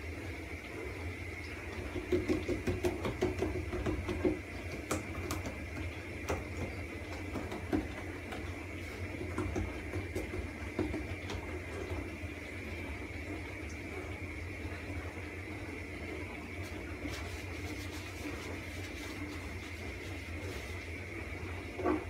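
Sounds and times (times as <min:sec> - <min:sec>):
steady background hum: 0:00.0 - 0:22.0
hands patting dough: 0:01.8 - 0:11.5, 0:16.7 - 0:21.0.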